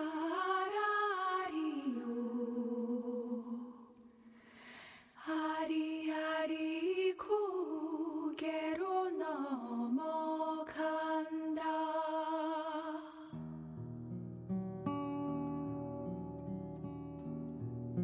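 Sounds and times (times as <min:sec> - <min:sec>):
person singing wordless chant: 0:00.0 - 0:04.0.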